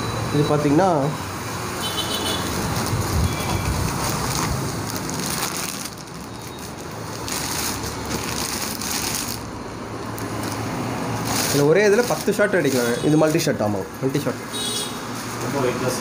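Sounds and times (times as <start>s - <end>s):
plastic bag crinkling: 2.5s - 13.7s.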